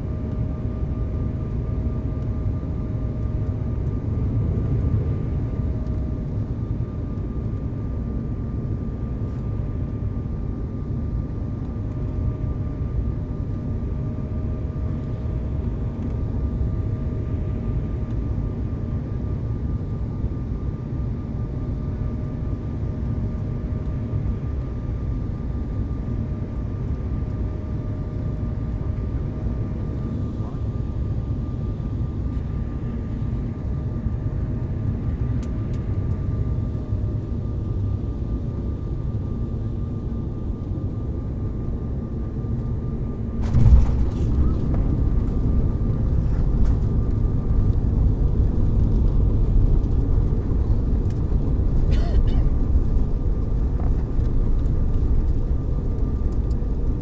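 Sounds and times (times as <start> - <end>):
jet engine cabin roar: 27.1 - 57.0
thin steady whine: 38.6 - 57.0
rushing air: 43.4 - 46.6.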